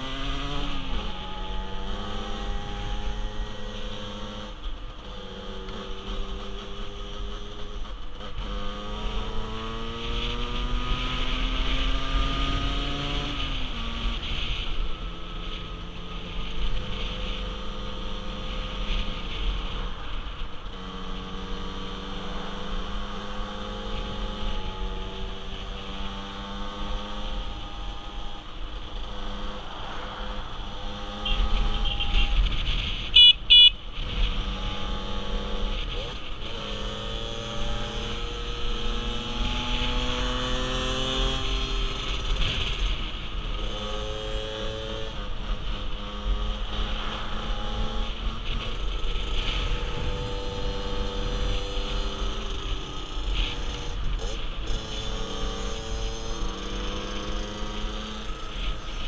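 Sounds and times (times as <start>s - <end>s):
motorcycle engine revving through gears: 0.0s - 59.0s
horn beeps: 31.0s - 33.8s.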